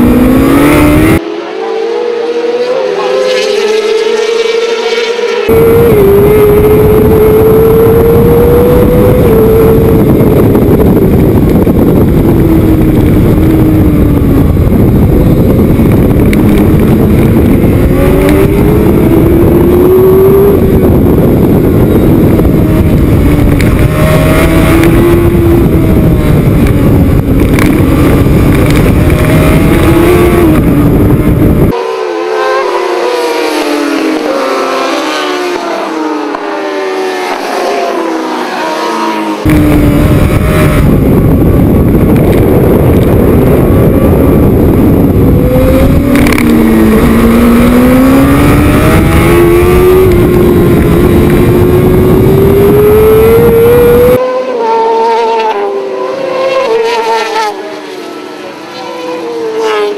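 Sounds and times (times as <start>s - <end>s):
motorcycle engine running hard: 0.0s - 1.2s, 5.5s - 31.9s, 39.0s - 54.3s
wind rumble: 0.0s - 1.2s, 5.5s - 31.8s, 33.0s - 54.3s
motorcycles passing by: 0.0s - 59.9s.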